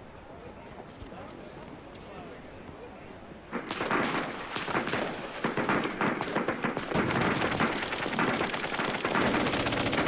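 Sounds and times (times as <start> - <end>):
rapid heavy gunfire: 3.5 - 10.0.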